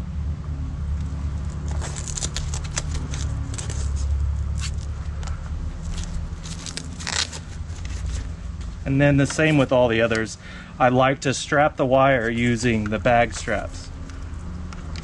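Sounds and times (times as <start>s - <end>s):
bag straps clicking and scraping: 1.4s - 9.7s.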